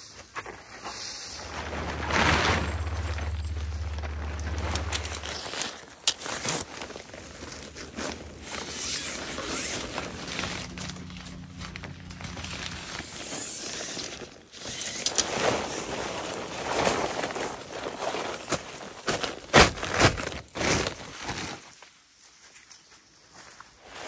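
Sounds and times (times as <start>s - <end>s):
nylon tent fabric rustling: 0.2s - 22.0s
tent poles clicking: 0.8s - 21.5s.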